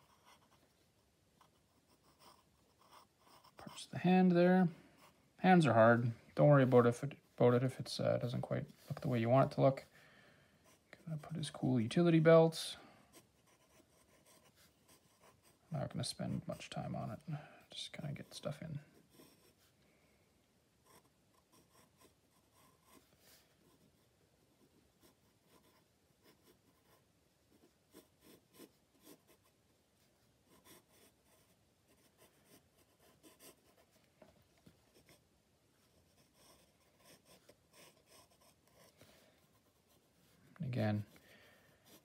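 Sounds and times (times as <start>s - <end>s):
pencil scratching on paper: 0.0s - 5.8s, 13.1s - 16.7s, 18.2s - 19.7s, 20.8s - 29.6s, 30.4s - 34.0s, 34.8s - 35.2s, 35.8s - 40.4s.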